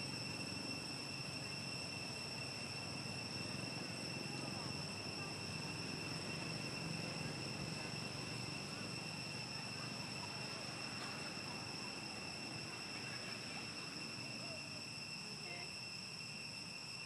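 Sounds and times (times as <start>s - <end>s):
high-pitched insect drone: 0.0s - 17.0s.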